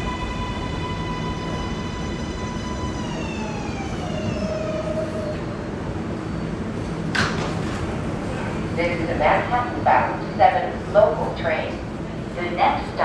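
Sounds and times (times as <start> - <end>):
subway train motor whine: 0.0 - 13.0
train cars rumbling: 0.0 - 13.0.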